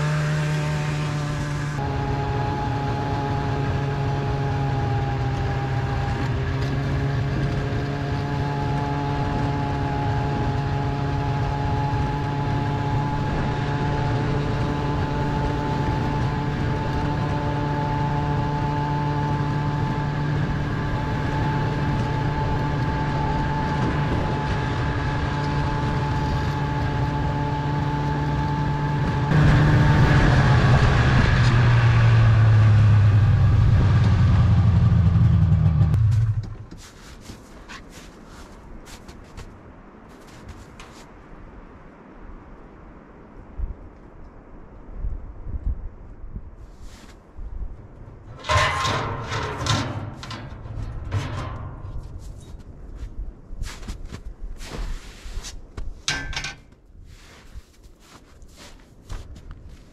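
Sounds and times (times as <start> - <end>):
snowmobile engine running: 0.0 - 36.4.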